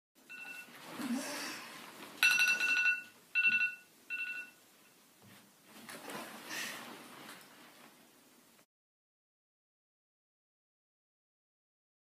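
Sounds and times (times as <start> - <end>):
phone alarm two-pitch beep: 0.3 - 0.7, 2.2 - 4.6
bedding rustling: 5.2 - 8.1.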